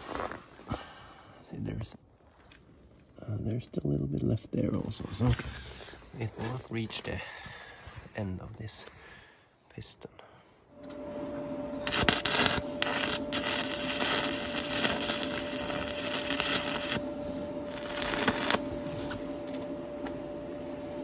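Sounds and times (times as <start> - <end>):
steady hum: 10.2 - 21.0
arc welding crackle and sizzle: 11.7 - 21.0.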